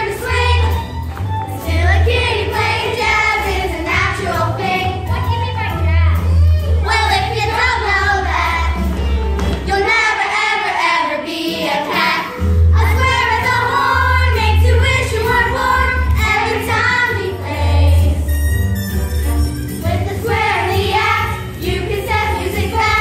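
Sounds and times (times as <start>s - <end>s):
jazzy accompaniment with deep bass: 0.0s - 9.7s, 12.4s - 23.0s
children's chorus singing: 1.6s - 5.1s, 9.6s - 18.3s, 19.8s - 23.0s.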